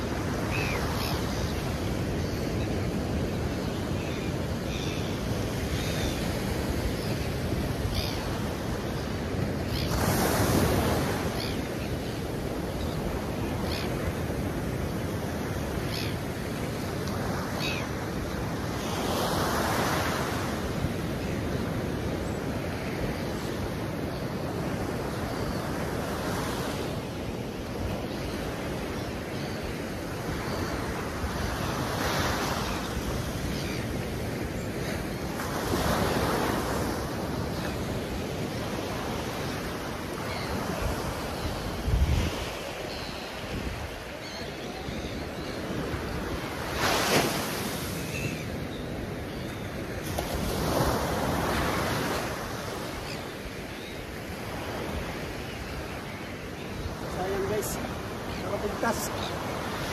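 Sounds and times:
waves breaking on a beach: 0:00.0 - 0:59.9
wind buffeting the microphone: 0:41.6 - 0:43.9.

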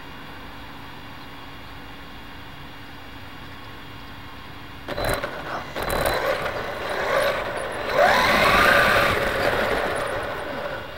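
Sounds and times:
electric motor whine: 0:04.9 - 0:10.9
rc car drivetrain clattering: 0:04.9 - 0:10.9.

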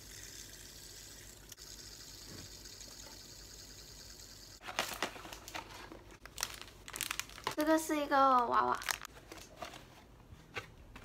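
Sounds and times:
fidget spinner whirring: 0:01.6 - 0:04.6
paper box crinkling and rustling: 0:04.6 - 0:11.0.

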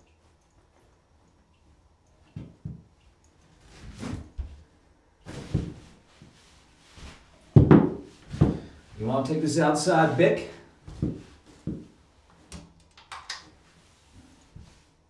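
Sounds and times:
dull knocks and thumps: 0:07.5 - 0:08.8, 0:10.9 - 0:11.9.

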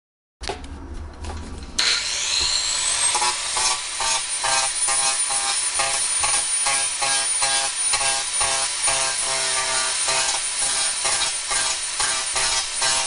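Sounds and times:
power saw whine: 0:01.8 - 0:13.0
saw grinding metal: 0:01.8 - 0:13.0.

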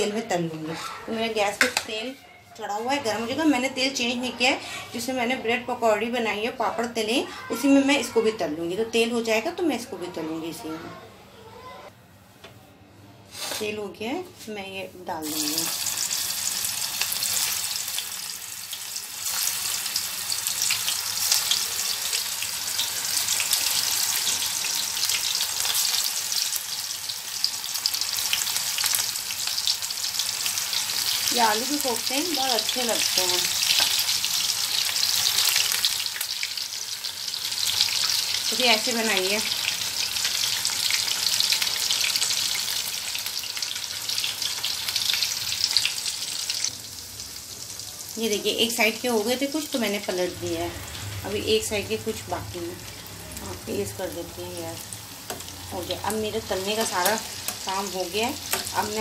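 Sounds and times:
food deep-frying in oil: 0:15.2 - 0:59.0.

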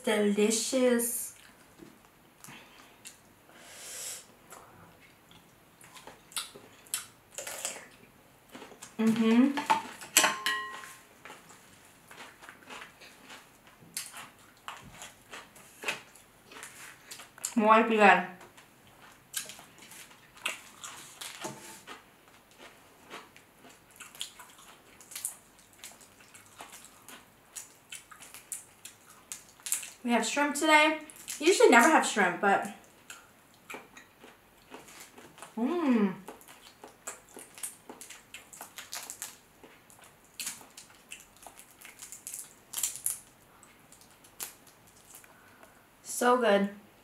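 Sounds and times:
shrimp shell peeling crackles: 0:37.1 - 0:45.5.

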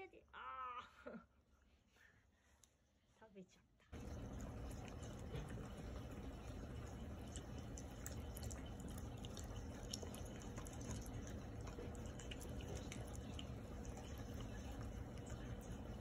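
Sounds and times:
low steady hum: 0:03.8 - 0:16.0
dog chewing wetly: 0:04.0 - 0:16.0.

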